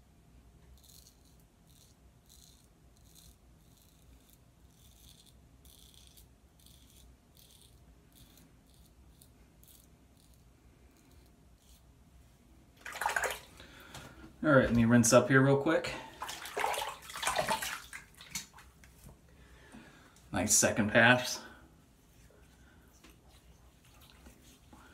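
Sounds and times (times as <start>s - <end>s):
razor scraping stubble: 0.7s - 11.9s.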